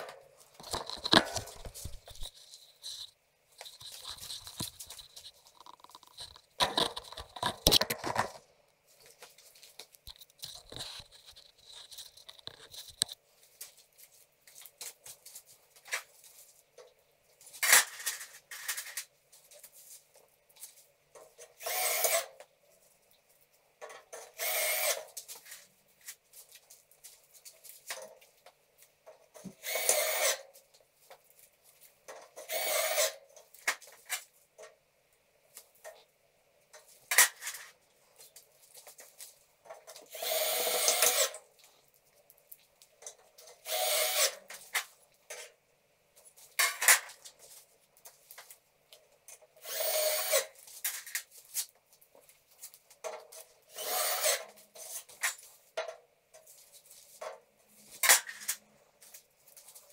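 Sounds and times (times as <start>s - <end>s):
power drill driving screws: 21.6s - 22.3s, 24.4s - 25.1s, 29.6s - 30.4s, 32.5s - 33.2s, 40.1s - 41.3s, 43.6s - 44.4s, 49.6s - 50.5s, 53.7s - 54.5s.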